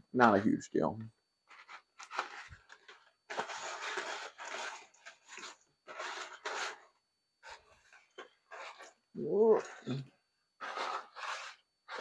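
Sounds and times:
dry pasta and cardboard box rustling: 0:01.5 - 0:06.8.

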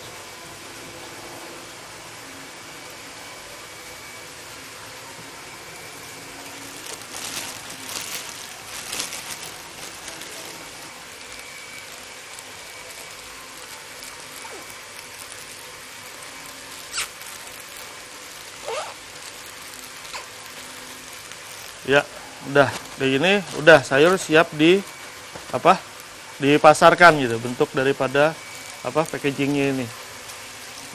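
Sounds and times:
plastic bag crinkling: 0:06.2 - 0:30.9.

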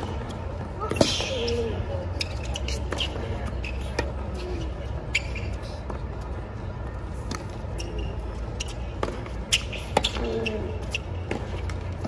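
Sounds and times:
low stadium background: 0:00.0 - 0:12.0
tennis ball bouncing on court: 0:07.1 - 0:08.0, 0:08.6 - 0:12.0.

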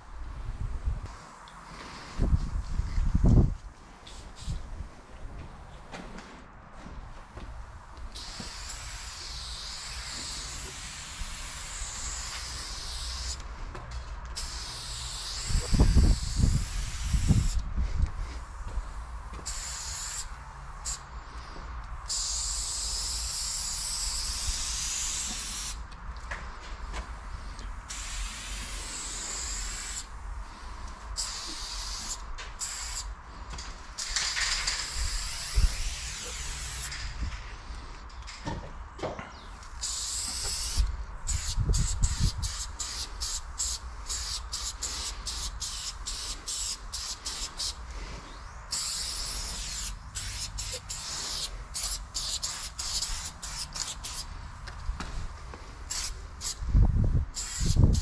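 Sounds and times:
spray paint can hissing: 0:04.0 - 0:04.6, 0:08.0 - 0:13.5, 0:14.3 - 0:17.7, 0:18.4 - 0:21.1, 0:22.0 - 0:25.8, 0:27.9 - 0:30.6, 0:31.2 - 0:33.1, 0:34.0 - 0:37.0, 0:39.6 - 0:48.0, 0:48.7 - 0:54.4, 0:55.8 - 0:56.7, 0:57.3 - 0:58.0.

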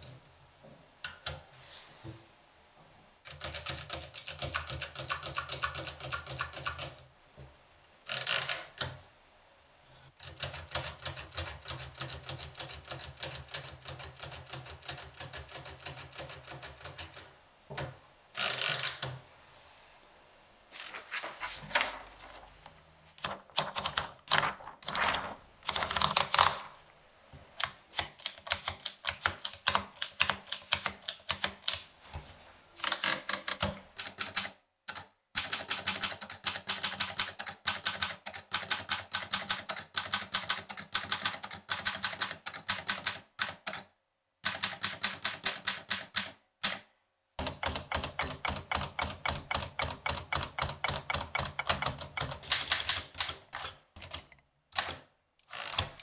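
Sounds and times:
typewriter typing: 0:03.3 - 0:07.0, 0:08.1 - 0:09.0, 0:10.2 - 0:19.2, 0:23.2 - 0:26.7, 0:27.9 - 0:31.8, 0:32.8 - 0:56.0.

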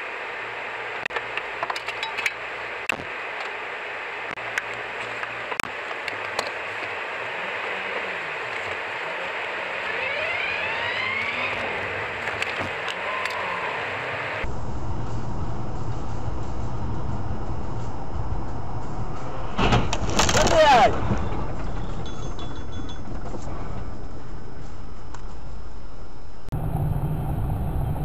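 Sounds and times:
wind and road noise inside car: 0:00.0 - 0:28.0
brief rising whines: 0:06.9 - 0:22.2, 0:26.4 - 0:28.0.

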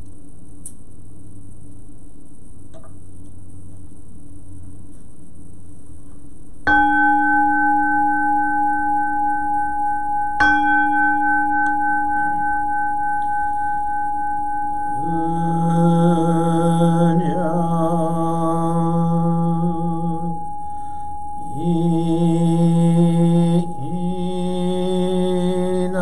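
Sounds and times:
temple bell ringing: 0:06.7 - 0:17.7
man chanting: 0:15.0 - 0:20.6, 0:21.5 - 0:26.0.

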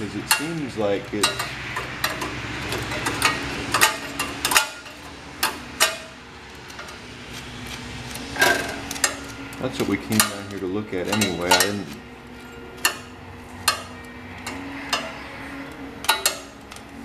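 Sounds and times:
hand tool knocking on metal: 0:09.6 - 0:12.0.

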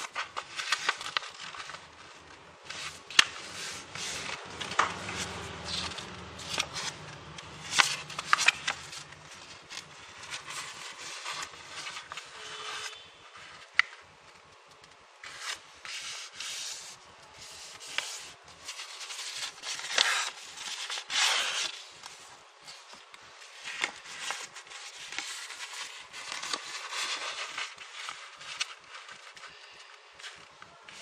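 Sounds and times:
paper rustling as it is folded: 0:00.0 - 0:31.0.

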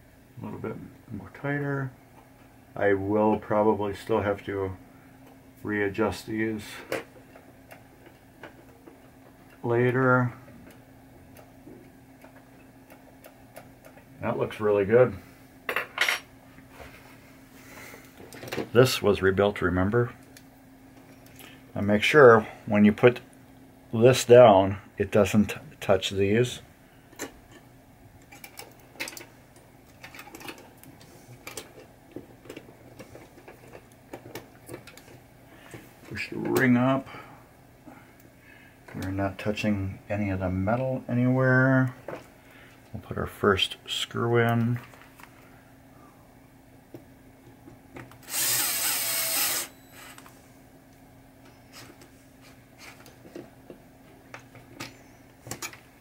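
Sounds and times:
cordless drill driving a screw: 0:48.2 - 0:50.2.

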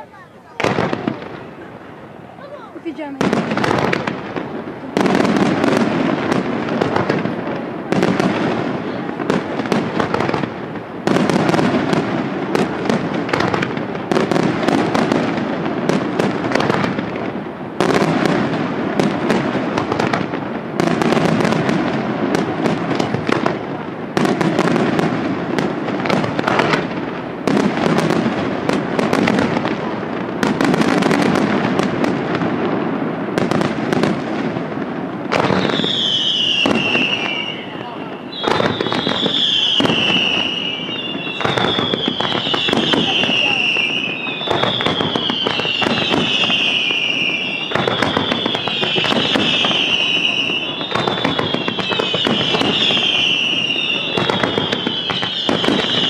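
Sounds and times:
firework crackling: 0:00.0 - 0:56.0.

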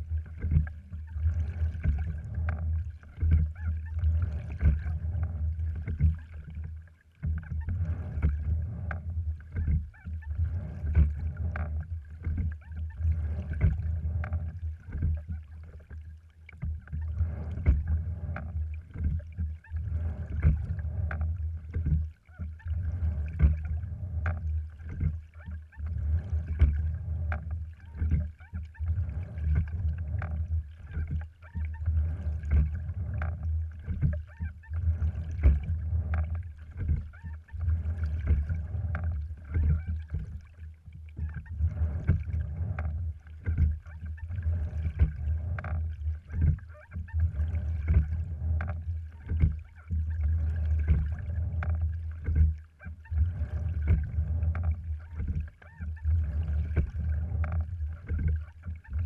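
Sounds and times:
water washing along hull: 0:00.0 - 0:59.0
oars knocking and clicking: 0:41.1 - 0:59.0.

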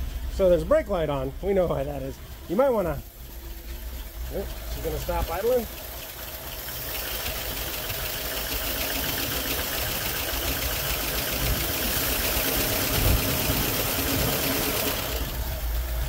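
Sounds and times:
car engine fast idle: 0:00.0 - 0:16.0
valve train ticking: 0:04.6 - 0:15.8.

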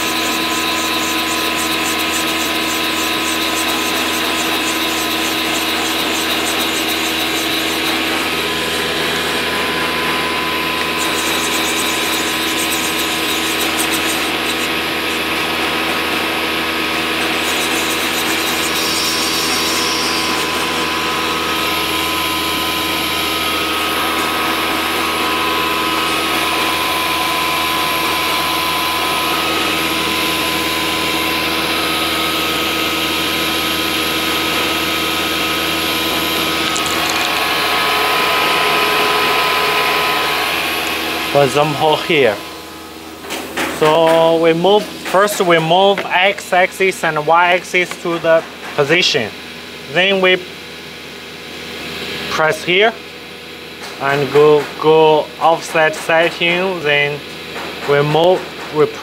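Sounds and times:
wood router whirring: 0:00.0 - 0:43.2
thin steady whines: 0:00.0 - 0:59.0.

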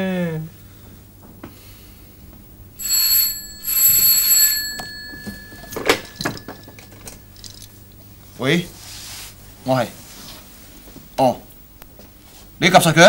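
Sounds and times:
desk telephone ringing: 0:02.8 - 0:07.9.

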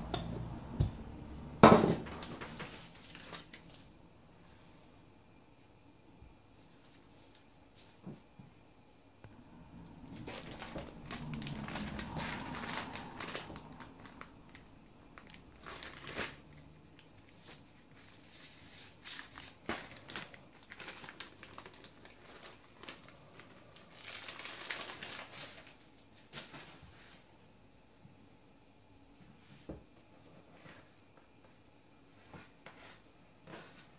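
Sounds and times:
plastic wrapper crinkling: 0:02.0 - 0:03.9, 0:09.9 - 0:26.8.

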